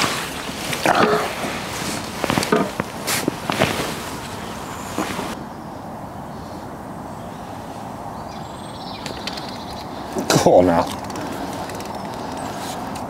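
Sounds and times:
water splashing off a net: 0:00.0 - 0:04.2
open-air background: 0:00.0 - 0:13.0.

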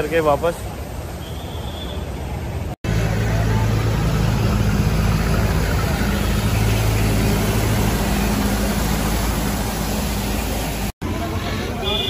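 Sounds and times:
street traffic: 0:00.0 - 0:12.0
vehicle engine idling: 0:02.4 - 0:12.0.

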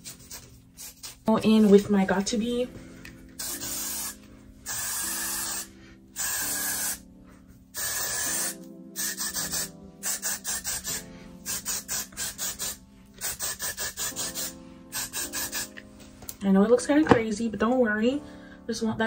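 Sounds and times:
aerosol hairspray hissing: 0:00.0 - 0:01.3, 0:03.4 - 0:07.0, 0:07.8 - 0:15.8
background music: 0:00.0 - 0:19.0.

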